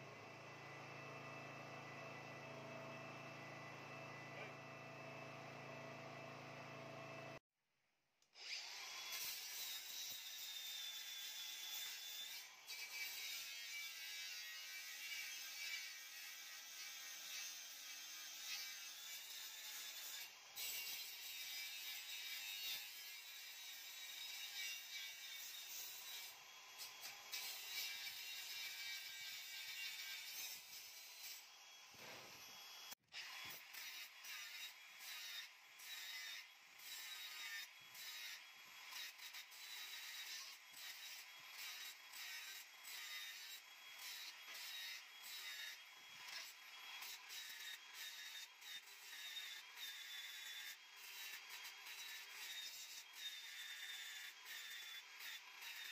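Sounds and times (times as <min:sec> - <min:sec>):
angle grinder grinding steel: 0:08.4 - 0:55.9.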